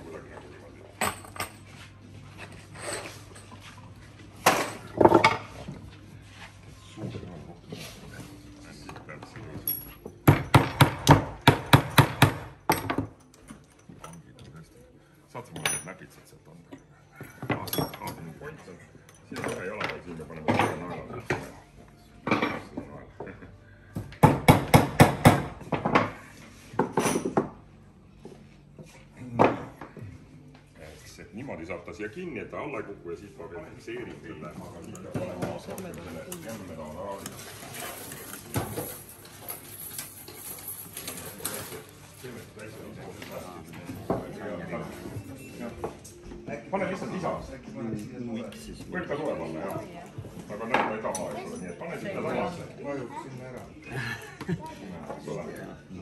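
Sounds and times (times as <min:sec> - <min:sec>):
tools knocking on tabletop: 0:10.2 - 0:13.2.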